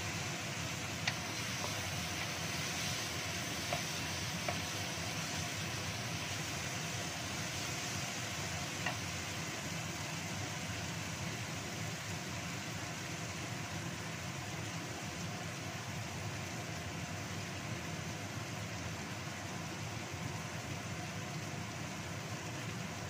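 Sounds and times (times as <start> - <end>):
paste sizzling in oil: 0.0 - 14.5
spatula tapping a wok: 1.0 - 5.6, 8.7 - 9.2.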